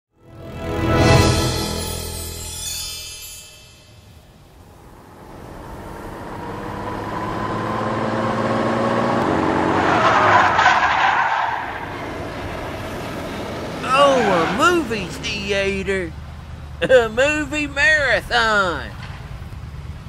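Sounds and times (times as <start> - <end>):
tire noise rush: 4.1 - 20.0
approaching car engine: 4.4 - 20.0.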